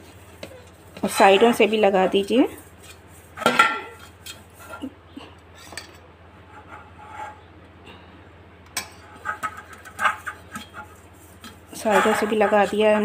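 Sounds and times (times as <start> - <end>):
fingers scraping metal tin: 9.1 - 13.0.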